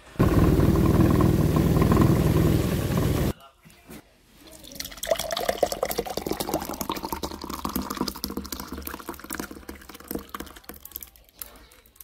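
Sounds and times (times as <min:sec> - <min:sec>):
juice pouring into metal pot: 0:04.6 - 0:12.0.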